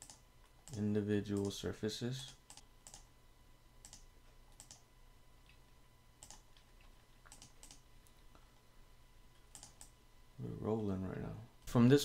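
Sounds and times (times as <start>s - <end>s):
faint steady hum: 0.0s - 12.0s
mouse and keyboard clicks: 6.2s - 7.8s.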